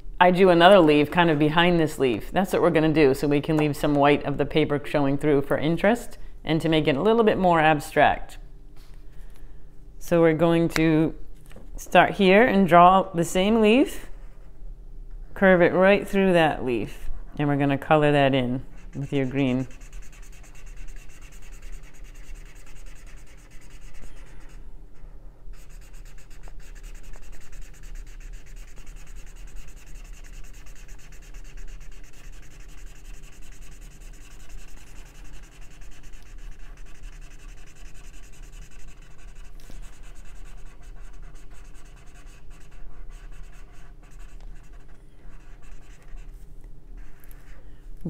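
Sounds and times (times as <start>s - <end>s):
marker scribbling on paper: 18.7s - 24.6s, 25.5s - 46.4s, 47.0s - 47.6s.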